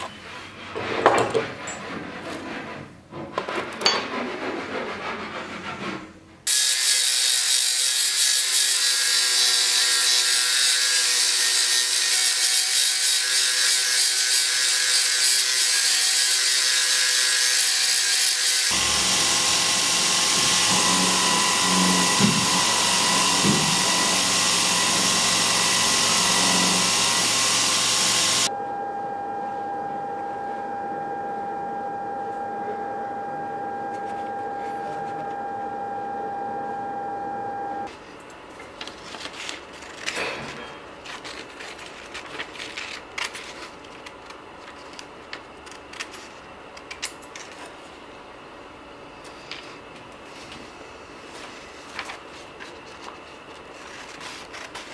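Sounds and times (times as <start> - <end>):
belt grinder grinding steel: 6.5 - 28.5.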